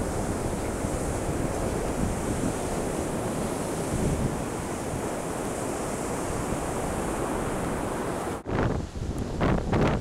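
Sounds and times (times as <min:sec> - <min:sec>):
ocean surf breaking: 0:00.0 - 0:08.6
wind buffeting microphone: 0:00.0 - 0:10.0.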